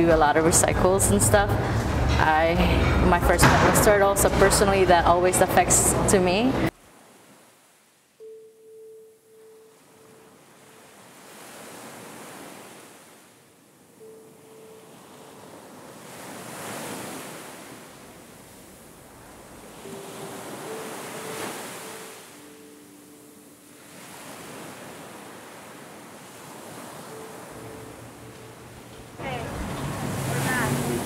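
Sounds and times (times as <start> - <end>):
ocean surf: 0.0 - 31.0
faint held tones: 8.2 - 10.9, 13.9 - 15.5, 26.8 - 29.5.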